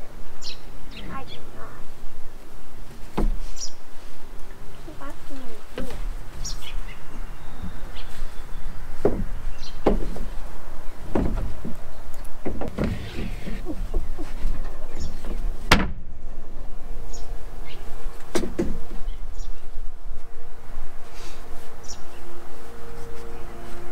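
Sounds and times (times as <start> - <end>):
irregular knocks and thumps: 3.1 - 3.4, 9.0 - 10.3, 11.1 - 14.4.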